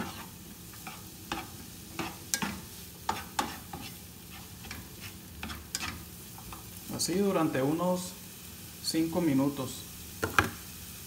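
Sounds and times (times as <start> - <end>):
spatula scraping frying pan: 0.0 - 6.8
vegetables sizzling in oil: 0.0 - 11.0.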